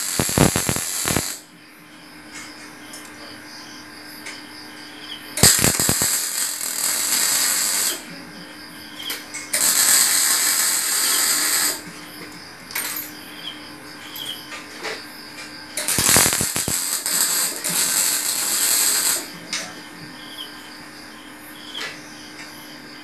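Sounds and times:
arc welding crackling hiss: 0.0 - 1.4, 5.4 - 8.2, 9.5 - 11.9, 15.8 - 19.7.

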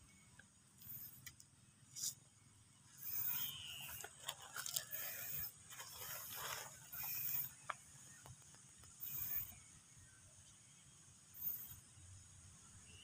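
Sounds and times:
plastic crinkling and rustling: 3.9 - 4.9, 5.7 - 6.8.

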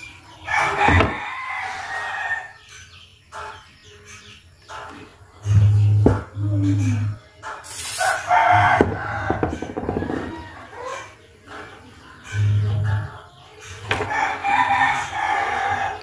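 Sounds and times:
rooster crowing: 0.5 - 2.6, 8.1 - 11.0, 14.1 - 16.0
low steady hum: 5.4 - 7.2, 12.3 - 13.1
aerosol spray can hiss: 7.6 - 8.2.

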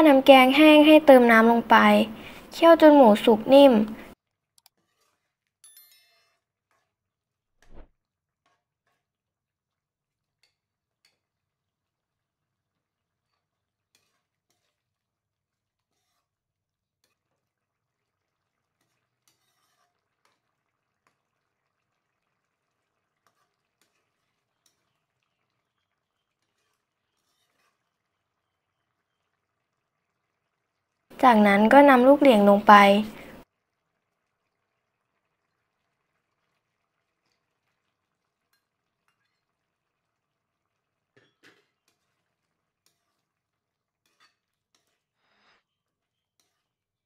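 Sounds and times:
spoon clicking against pan: 4.6 - 4.8, 10.4 - 11.3, 44.0 - 45.0
metal spoon scraping a wok: 4.6 - 7.0, 13.3 - 15.0, 15.8 - 16.4, 18.8 - 20.1, 26.4 - 27.9, 41.8 - 43.3, 44.0 - 46.8.

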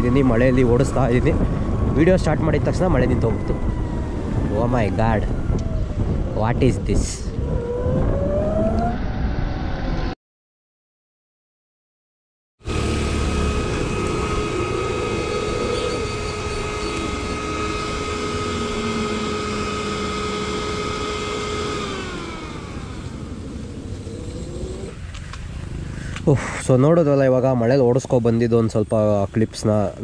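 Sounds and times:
electric scooter whine: 0.0 - 10.2, 12.6 - 26.3
wind noise: 0.0 - 10.2, 12.7 - 26.7.

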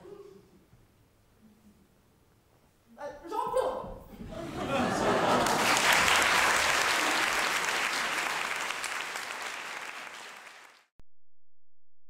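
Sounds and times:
audience applauding: 4.6 - 10.9.

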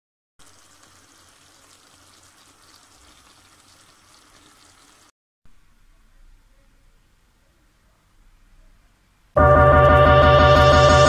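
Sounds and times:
sauce simmering in pan: 0.4 - 5.1.

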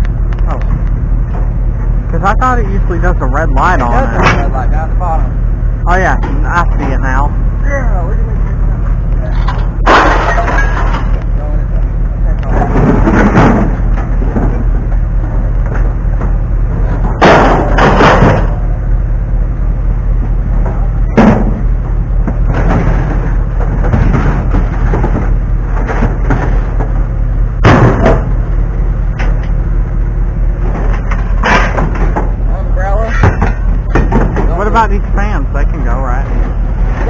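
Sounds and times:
steady low hum: 0.0 - 37.0
scrap metal clanking and crashing: 3.4 - 4.6, 9.2 - 11.2, 12.4 - 18.8, 20.6 - 27.0, 27.6 - 28.4, 30.6 - 32.4, 33.0 - 34.8.

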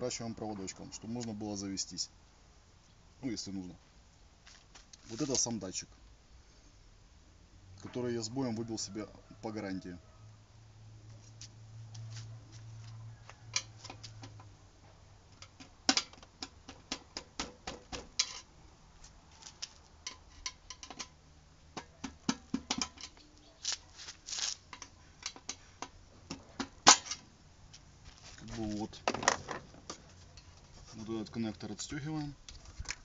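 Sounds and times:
hands handling scooter parts: 15.3 - 31.1.

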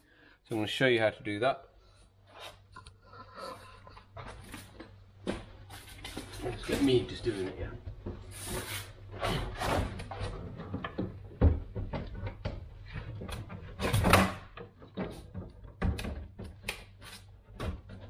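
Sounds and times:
boiler knocks and scraping: 4.1 - 16.6.

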